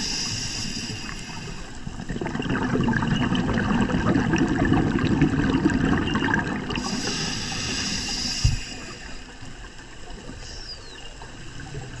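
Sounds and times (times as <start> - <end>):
regulator hissing inhale: 0.0 - 1.9, 6.8 - 9.5, 10.3 - 10.8
underwater water noise: 0.0 - 12.0
exhaled bubble rumble: 1.8 - 7.1.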